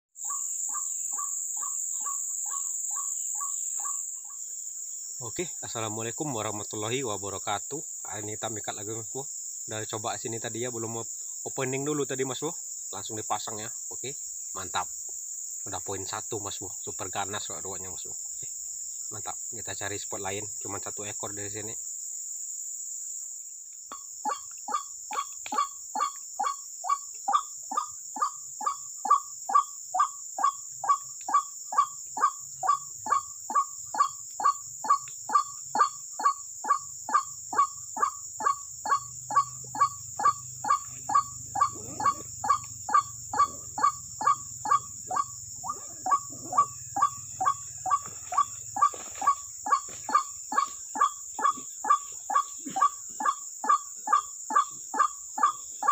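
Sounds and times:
insects droning: 0.2s - 55.9s
waterhen calling: 23.9s - 55.9s.

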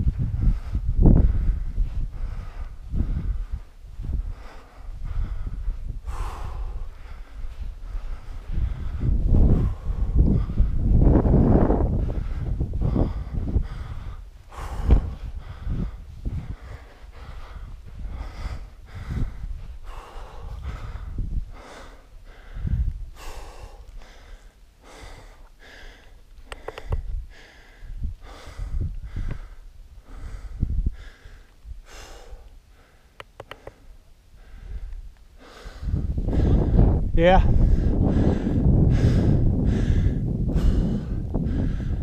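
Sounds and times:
person breathing hard: 0.0s - 42.0s.

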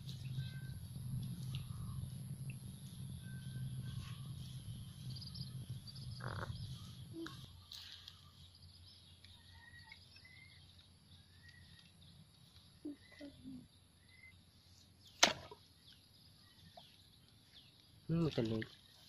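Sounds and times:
low rumble: 0.0s - 7.7s
bird chirps: 0.0s - 19.0s
insects chirping: 0.0s - 19.0s.

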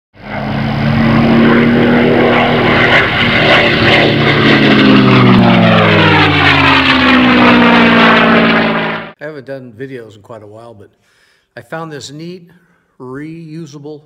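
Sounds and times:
propeller airplane passing by: 0.2s - 9.2s.

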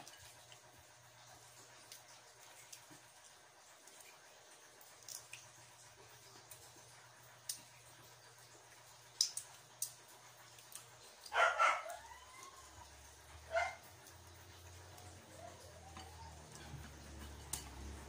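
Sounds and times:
dog barking: 11.3s - 12.2s, 13.4s - 13.9s.

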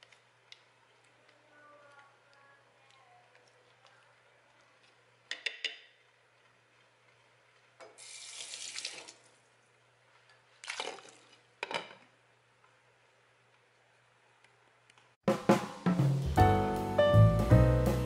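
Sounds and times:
running water: 7.8s - 9.5s.

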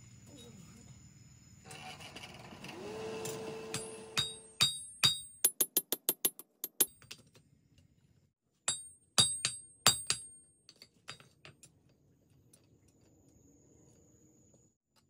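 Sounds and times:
hammer striking steel on anvil: 3.7s - 7.1s, 8.7s - 10.5s.

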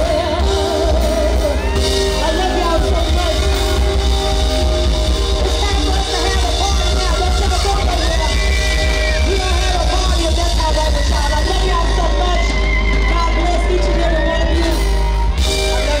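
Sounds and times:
woman singing into microphone: 0.0s - 3.3s
live rock band playing: 0.0s - 16.0s.

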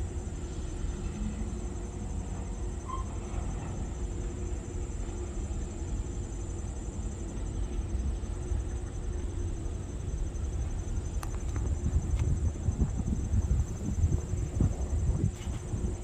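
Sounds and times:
insects trilling: 0.0s - 16.0s.

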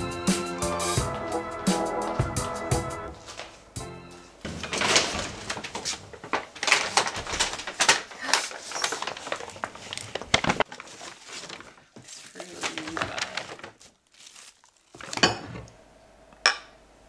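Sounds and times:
paper bags rustling: 3.1s - 3.7s, 4.3s - 15.4s.

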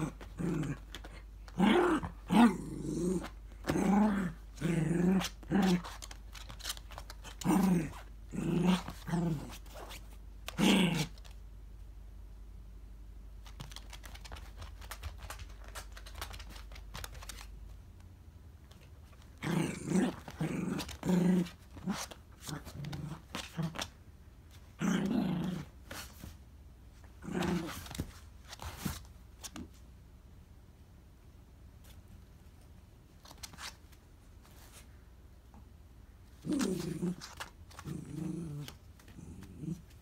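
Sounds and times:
dog growling: 0.0s - 5.9s, 7.3s - 9.6s, 19.4s - 23.9s, 36.4s - 40.0s
dog scrabbling clicks and scrapes: 5.1s - 8.0s, 13.4s - 17.6s.

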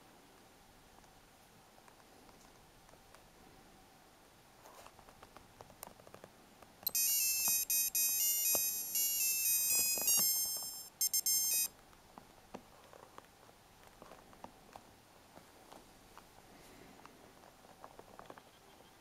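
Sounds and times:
digital watch electronic melody: 6.9s - 11.7s.

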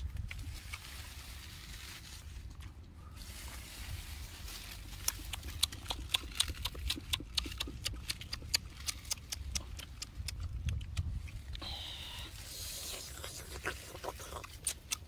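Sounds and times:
wet chewing and tearing crackles: 4.5s - 11.6s, 12.4s - 15.0s.

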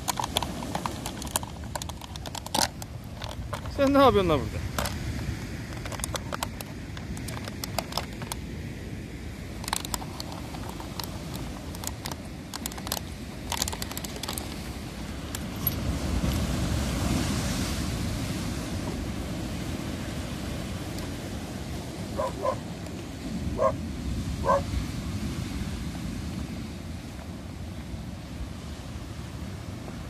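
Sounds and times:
dog chewing plastic bottle: 0.0s - 3.7s
waves breaking on pebbles: 0.0s - 30.0s.

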